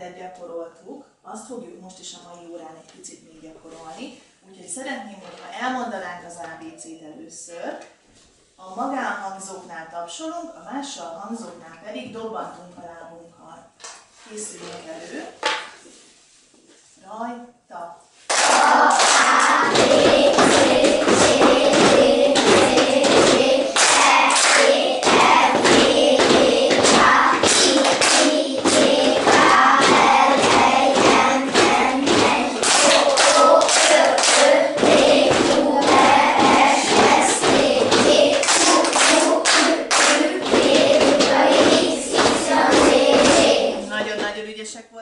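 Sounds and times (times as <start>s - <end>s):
children clapping hands: 18.3s - 43.9s
children chanting in unison: 18.3s - 44.0s
feet stamping: 18.6s - 44.4s.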